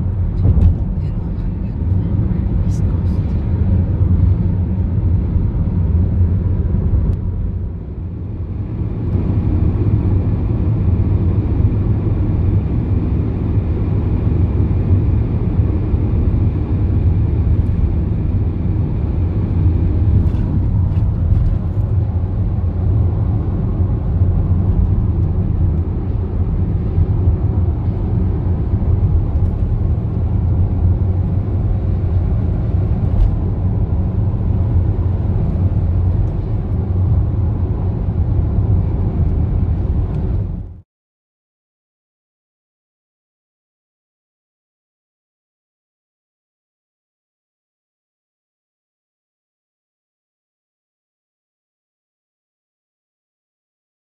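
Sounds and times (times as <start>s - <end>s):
car road and engine rumble: 0.0s - 40.8s.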